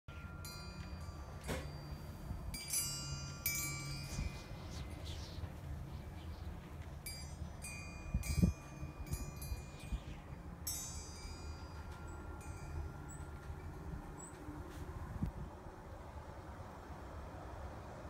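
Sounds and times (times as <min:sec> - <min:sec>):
wind chime tinkling: 0:00.1 - 0:05.4, 0:07.0 - 0:15.0
breeze rumble: 0:00.1 - 0:18.0.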